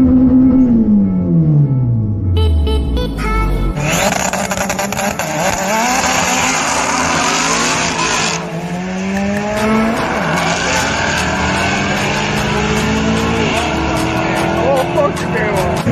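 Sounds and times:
race car engine accelerating: 0:03.8 - 0:15.9.

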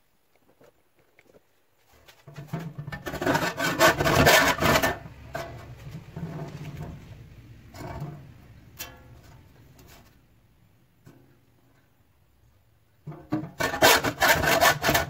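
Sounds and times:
saw cutting sheet steel: 0:03.1 - 0:05.1, 0:13.6 - 0:15.0.

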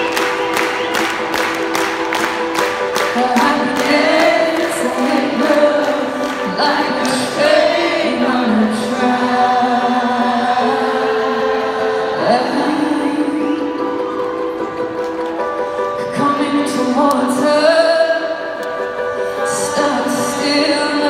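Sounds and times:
woman singing: 0:03.0 - 0:14.5, 0:15.9 - 0:21.0.

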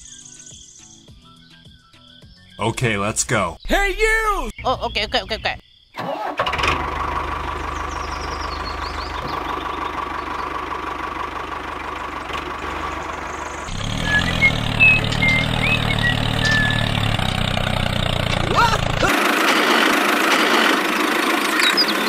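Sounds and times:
tractor engine running: 0:05.1 - 0:22.0.

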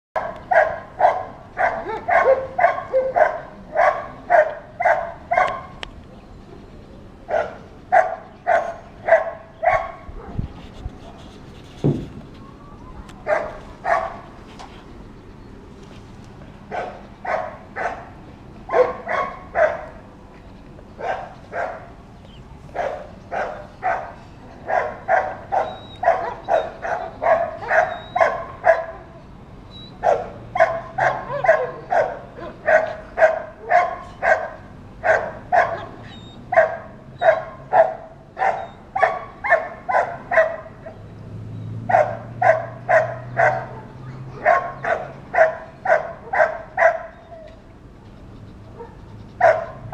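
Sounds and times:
dog barking: 0:00.2 - 0:05.8, 0:07.3 - 0:10.4, 0:13.2 - 0:14.3, 0:16.7 - 0:18.1, 0:18.7 - 0:20.0, 0:21.0 - 0:21.9, 0:22.8 - 0:29.1, 0:30.0 - 0:41.0, 0:41.9 - 0:47.5, 0:48.8 - 0:49.9.

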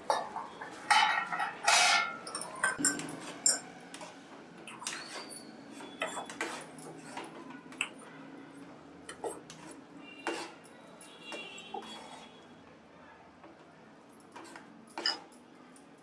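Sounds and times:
metal spatula scraping a pan: 0:00.1 - 0:02.6, 0:09.2 - 0:10.6, 0:11.4 - 0:12.4.

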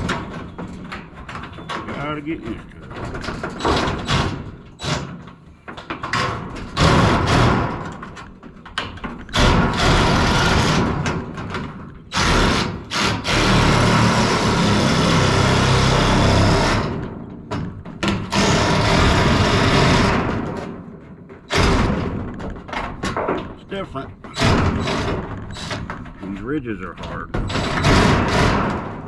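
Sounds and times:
power shear cutting steel: 0:09.4 - 0:11.0, 0:12.1 - 0:17.0, 0:18.3 - 0:20.3.

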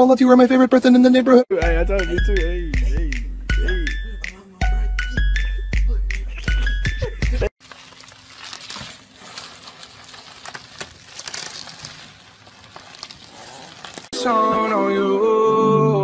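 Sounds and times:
bubble wrap crinkling: 0:07.6 - 0:14.2.

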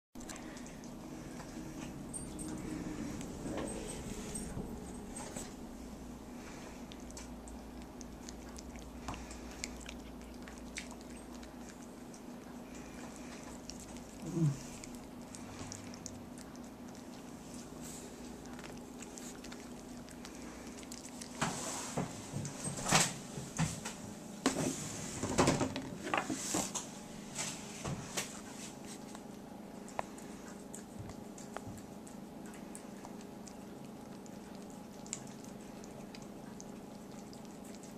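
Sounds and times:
cat licking and chewing: 0:00.2 - 0:23.8, 0:25.9 - 0:37.9
low steady hum: 0:00.2 - 0:37.9.

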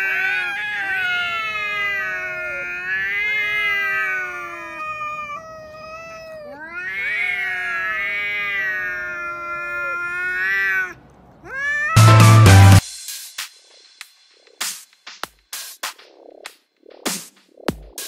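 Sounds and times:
cats yowling: 0:00.0 - 0:12.8.

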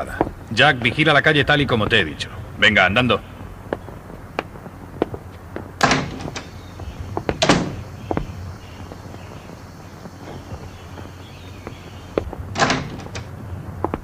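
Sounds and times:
door banging shut: 0:05.8 - 0:06.6, 0:07.2 - 0:08.4, 0:12.2 - 0:13.3.

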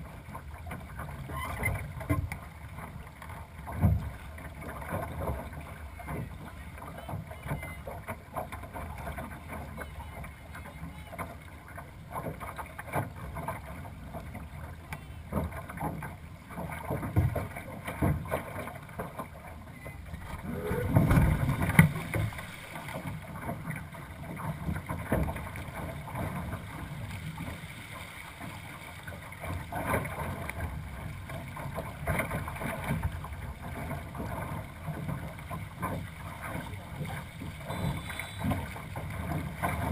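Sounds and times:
water slapping along hull: 0:00.0 - 0:39.9
low rumble: 0:20.1 - 0:22.9
wind buffeting microphone: 0:20.2 - 0:22.6.

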